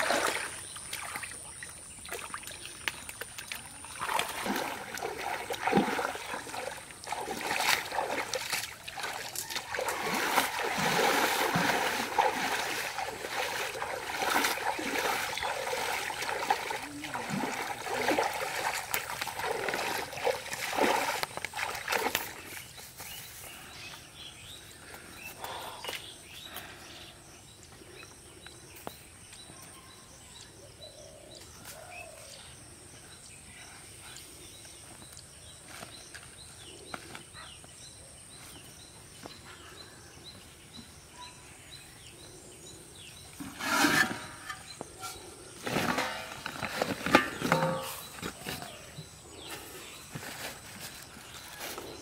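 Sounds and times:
water splashing: 0:00.0 - 0:22.7.

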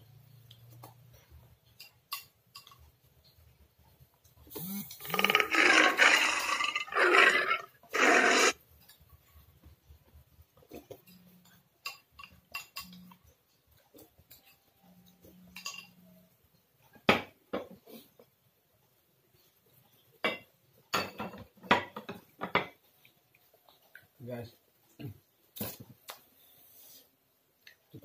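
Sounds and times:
quiet eating noises: 0:00.0 - 0:28.0
loud slurping from bowl: 0:04.9 - 0:08.6.

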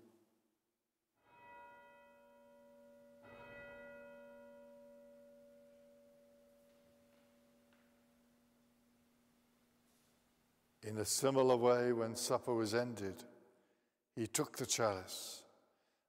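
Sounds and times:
faint bell ringing: 0:01.2 - 0:09.5.

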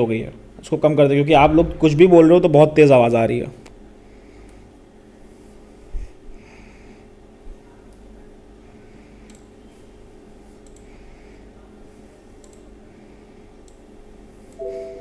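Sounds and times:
low steady hum: 0:00.0 - 0:15.0
keyboard and mouse clicks: 0:09.3 - 0:09.5, 0:10.6 - 0:10.9, 0:12.4 - 0:12.7
short electronic chord tone: 0:14.6 - 0:15.0.

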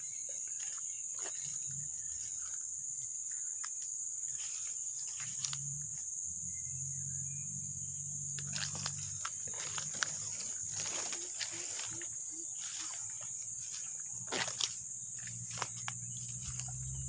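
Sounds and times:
high-pitched insect drone: 0:00.0 - 0:17.0
footsteps on dry grass: 0:08.4 - 0:17.0.

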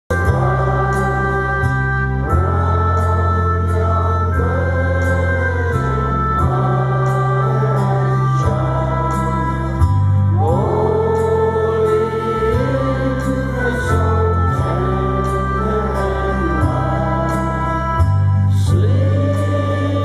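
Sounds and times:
group singing a carol: 0:00.1 - 0:20.0
held low bass notes: 0:00.1 - 0:20.0.

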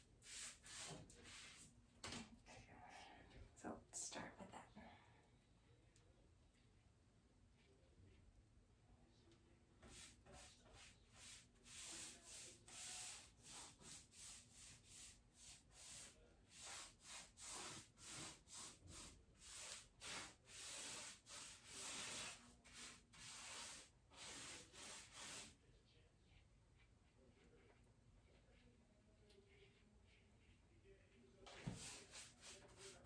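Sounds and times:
paintbrush swishing over wood: 0:00.2 - 0:01.7, 0:09.8 - 0:25.6, 0:31.4 - 0:33.0.

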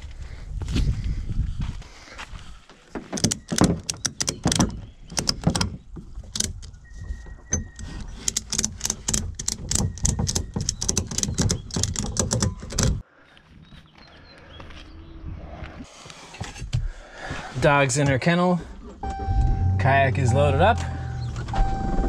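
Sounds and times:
ratchet strap clicking: 0:03.2 - 0:04.6, 0:07.7 - 0:13.0.

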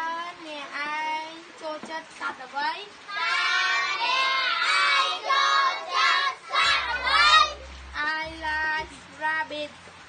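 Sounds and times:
children singing in chorus: 0:03.1 - 0:08.3.

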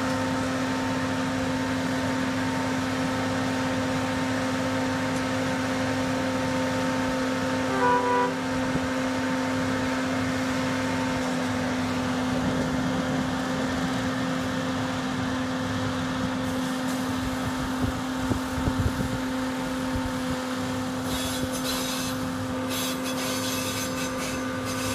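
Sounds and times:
short beeps: 0:07.7 - 0:08.4.

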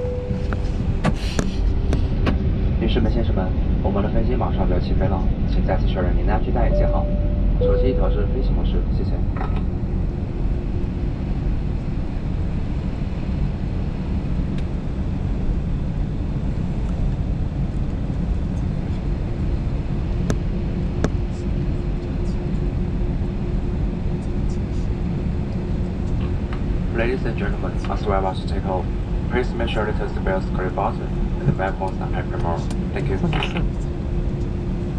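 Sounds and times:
faint steady hum: 0:00.0 - 0:15.5
jet cabin rumble: 0:00.0 - 0:34.9.

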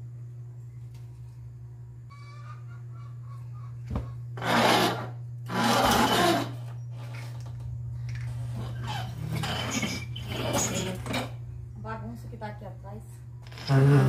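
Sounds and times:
steady low hum: 0:00.0 - 0:14.0
sofa scraping across tiled floor: 0:04.4 - 0:07.3, 0:08.5 - 0:11.3.

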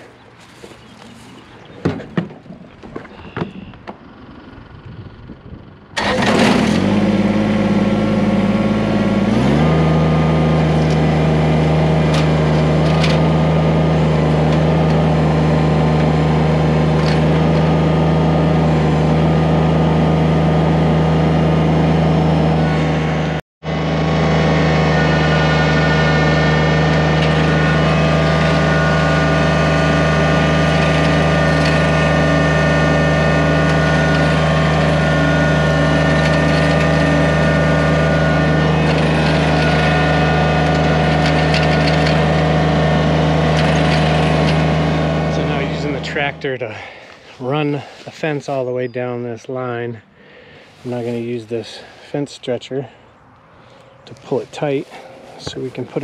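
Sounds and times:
tractor engine running: 0:00.0 - 0:56.0.

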